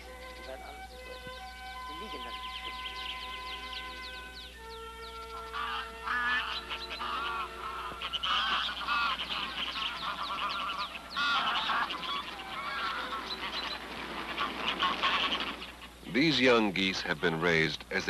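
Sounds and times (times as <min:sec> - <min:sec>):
held music notes: 0:00.0 - 0:14.3
geese honking: 0:00.0 - 0:18.0.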